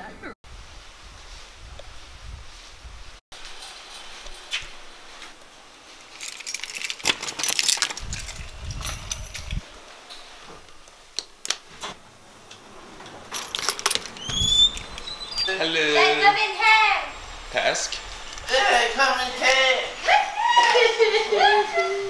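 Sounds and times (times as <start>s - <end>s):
keys jangling: 6.1s - 9.6s, 13.3s - 15.1s
low rumble: 16.4s - 20.0s.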